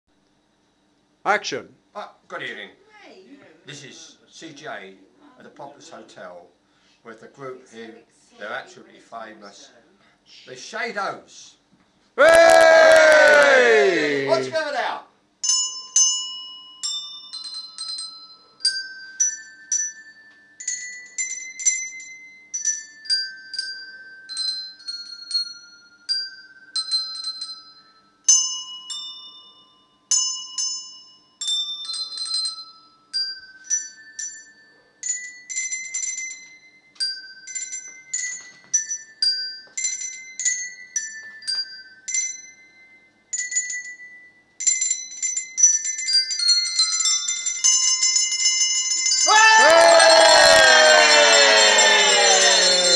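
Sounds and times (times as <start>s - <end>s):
handbells playing slow melody: 15.4s - 52.9s.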